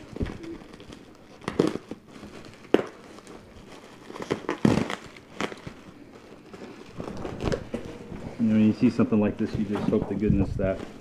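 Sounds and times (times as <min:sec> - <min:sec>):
knife slitting bubble wrap: 0:00.0 - 0:05.9
sharp crackles: 0:00.0 - 0:07.9
bubble wrap crinkling and rustling: 0:00.0 - 0:11.0.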